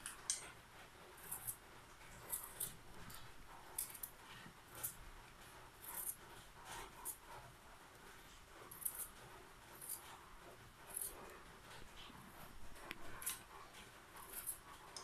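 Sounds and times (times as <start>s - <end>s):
knife scraping potato skin: 1.2s - 5.0s, 5.8s - 7.5s, 8.6s - 11.9s, 12.9s - 13.5s, 14.2s - 15.0s.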